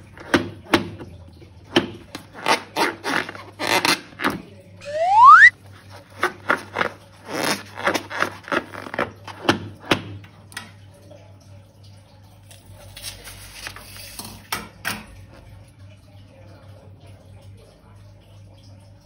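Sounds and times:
balloon squeaking and rubbing: 0:04.8 - 0:05.5.

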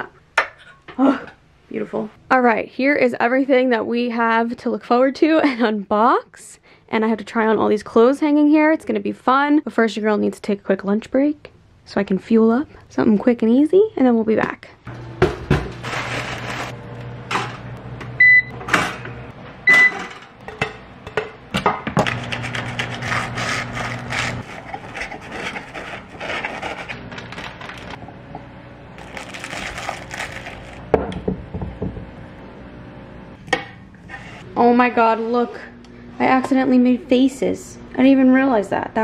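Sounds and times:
appliance hum: 0:14.8 - 0:39.0.

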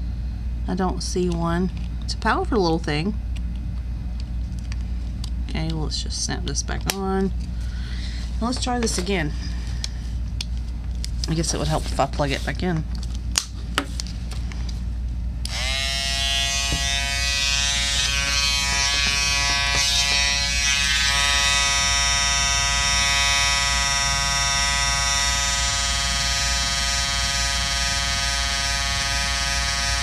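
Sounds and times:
electric trimmer buzzing: 0:15.4 - 0:30.0.

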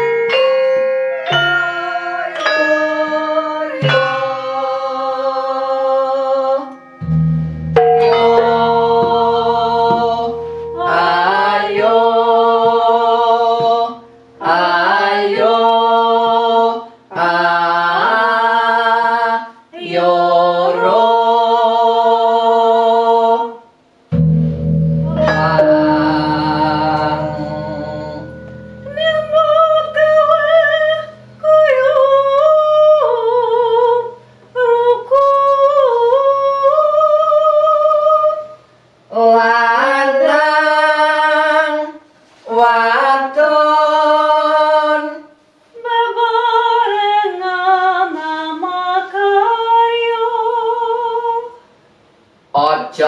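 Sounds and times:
gongs ringing: 0:00.0 - 0:16.5, 0:24.1 - 0:37.2
woman singing with vibrato: 0:01.2 - 0:23.7, 0:25.1 - 0:51.7.

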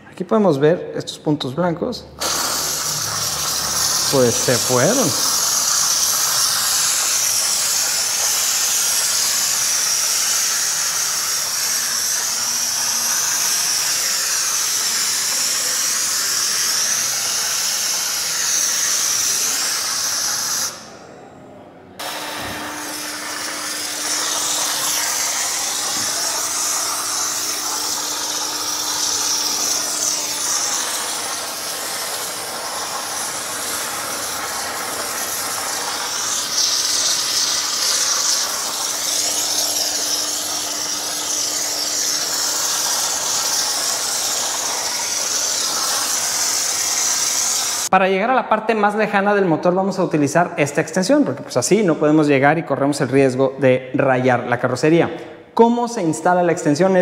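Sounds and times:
steam cleaner hissing: 0:02.2 - 0:21.0, 0:22.0 - 0:47.9.

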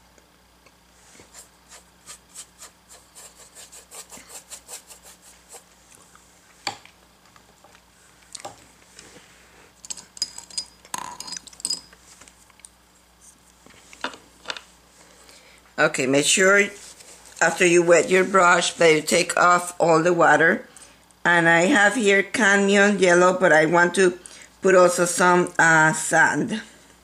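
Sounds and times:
paintbrush scrubbing on board: 0:01.0 - 0:05.8.

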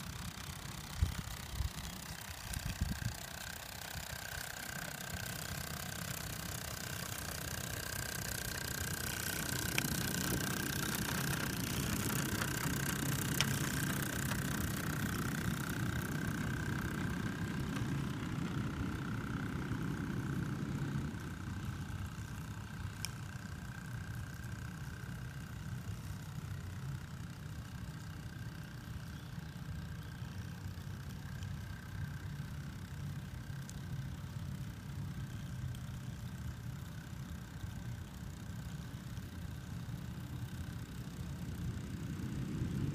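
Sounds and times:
small steam locomotive rumbling: 0:00.0 - 0:42.9.

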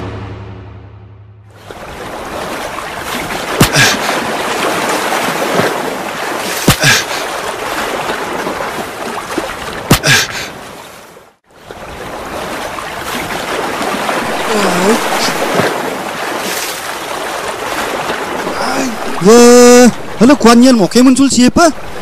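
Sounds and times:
water splashing and sloshing: 0:00.0 - 0:22.0
sharp smacks on water: 0:03.1 - 0:07.2, 0:09.8 - 0:10.4, 0:15.4 - 0:16.6.

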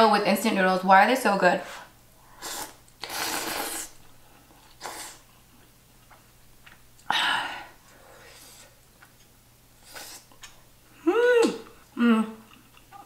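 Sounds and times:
slurping noodles: 0:02.4 - 0:04.0, 0:04.7 - 0:05.2, 0:09.8 - 0:10.3.

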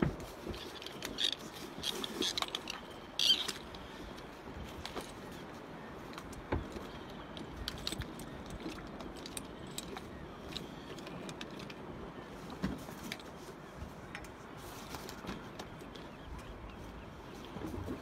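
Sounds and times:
scuba gear clinking: 0:00.5 - 0:03.9, 0:07.3 - 0:11.8.

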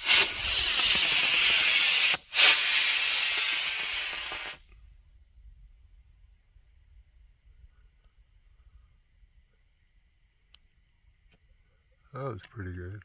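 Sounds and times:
rocket motor hissing: 0:00.0 - 0:04.6.

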